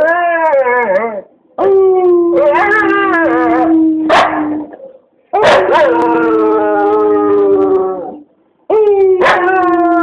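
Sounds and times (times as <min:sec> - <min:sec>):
dog howling: 0:00.0 - 0:04.7, 0:05.4 - 0:10.0.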